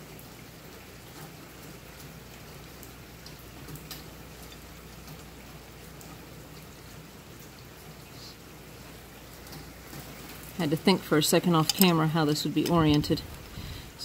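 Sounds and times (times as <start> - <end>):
low hiss: 0.0 - 14.0
faint metal clicks and taps: 11.6 - 12.0.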